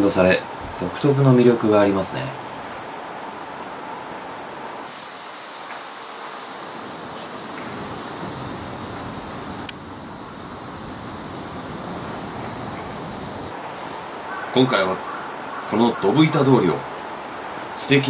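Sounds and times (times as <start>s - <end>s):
cicadas droning: 0.0s - 18.0s
wind: 0.0s - 18.0s
street noise: 6.6s - 18.0s.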